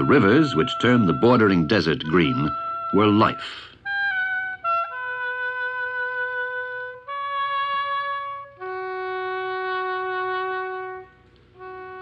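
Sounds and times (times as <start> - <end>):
solo wind instrument playing: 0.0 - 12.0.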